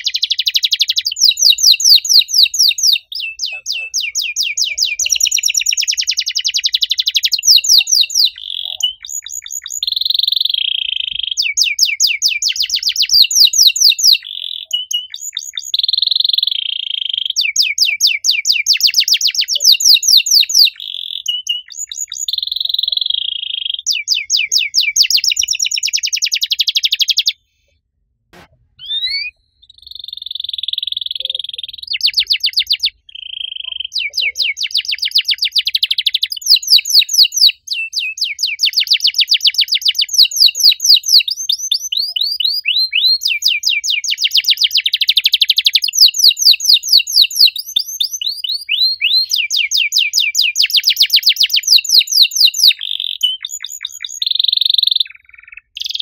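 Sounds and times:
canary singing trills: 0.0s - 27.4s, 28.4s - 56.0s
canary whistled note: 28.8s - 29.4s.

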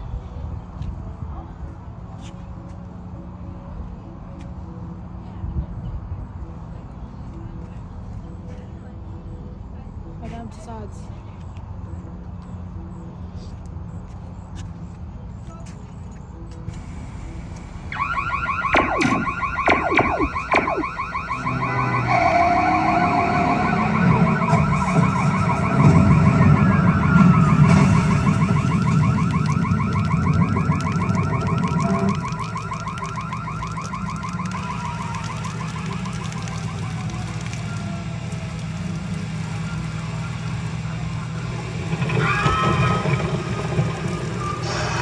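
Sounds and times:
fire engine siren wailing: 17.8s - 45.0s
low rumble: 23.2s - 45.0s
sharp clicks: 27.1s - 40.6s.

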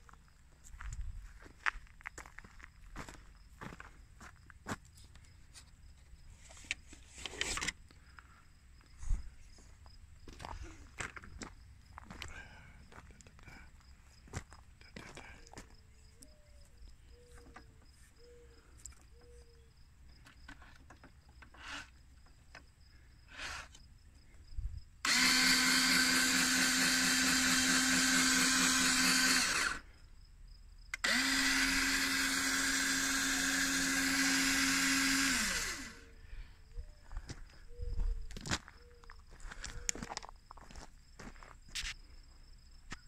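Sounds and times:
power tool motor running: 25.0s - 29.9s, 31.0s - 36.2s.

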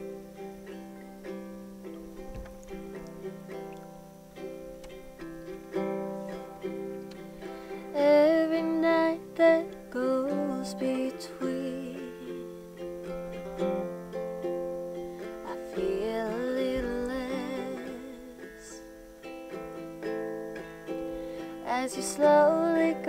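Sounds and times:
ukulele playing slow song: 0.0s - 23.0s
woman singing: 7.7s - 12.7s, 15.4s - 19.0s, 21.4s - 23.0s.

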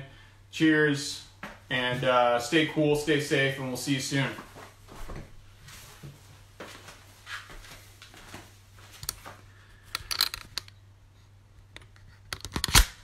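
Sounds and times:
steady low hum: 0.0s - 13.0s
clicks of objects being handled: 9.0s - 10.8s, 11.7s - 12.9s.

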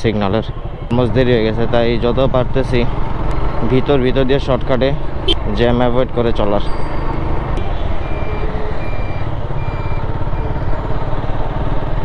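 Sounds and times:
road and wind noise: 0.0s - 12.0s
motorcycle engine running: 9.2s - 12.0s.

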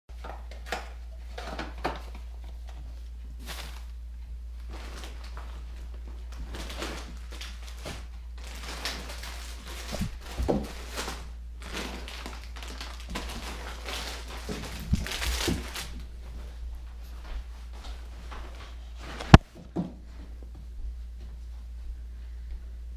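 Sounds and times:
rustling and crinkling: 0.1s - 22.7s
steady low hum: 0.1s - 22.9s.

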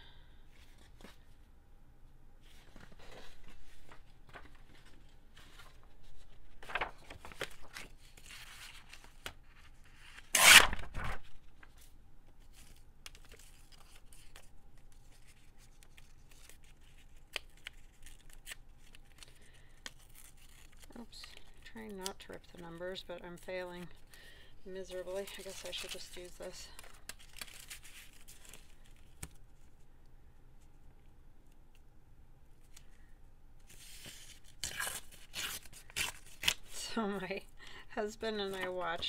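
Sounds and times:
paper rustling: 2.4s - 24.1s, 24.9s - 29.8s, 33.6s - 36.8s
paper tearing: 10.2s - 11.2s, 33.9s - 36.8s.

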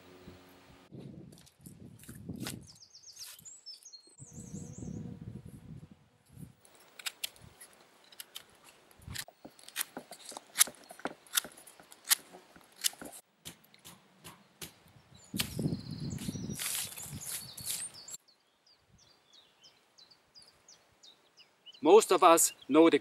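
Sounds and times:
knife cutting wood snapping: 1.4s - 3.4s, 6.8s - 7.4s, 9.1s - 15.7s
handling rustle: 16.3s - 18.2s.

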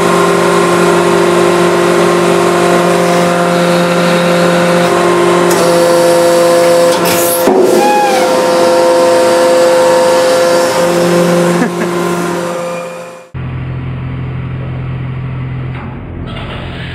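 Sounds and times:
hydraulic press humming: 0.0s - 13.6s.

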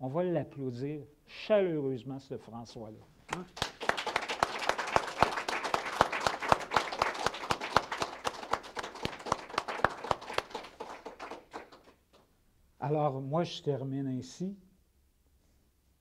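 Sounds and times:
small group applauding: 3.3s - 12.3s.

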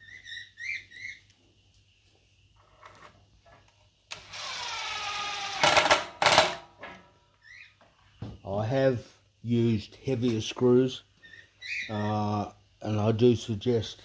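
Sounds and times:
cordless drill driving screw: 4.1s - 6.2s.

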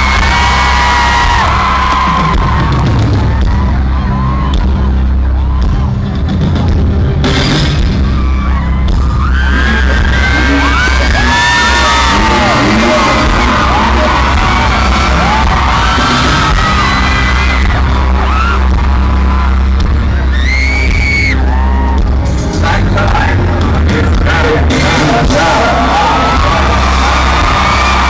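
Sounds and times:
crowd screaming and cheering: 0.0s - 28.0s
loud music with heavy bass: 0.0s - 28.0s.

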